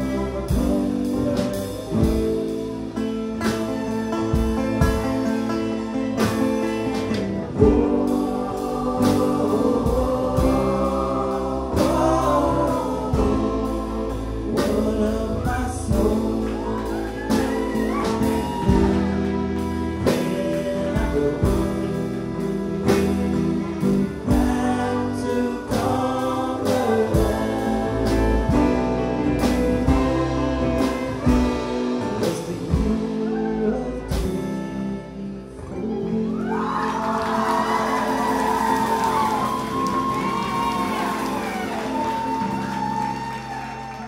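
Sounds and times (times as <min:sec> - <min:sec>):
voices singing along: 0:00.0 - 0:43.9
bluegrass band playing: 0:00.0 - 0:44.0
upright bass: 0:00.0 - 0:44.0.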